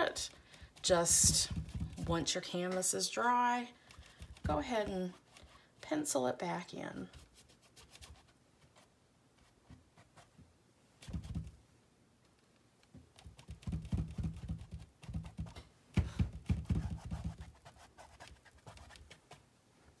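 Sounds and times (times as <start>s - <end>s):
paintbrush dabbing on canvas: 0.0s - 2.9s, 3.8s - 5.6s, 11.0s - 11.5s, 13.1s - 19.4s.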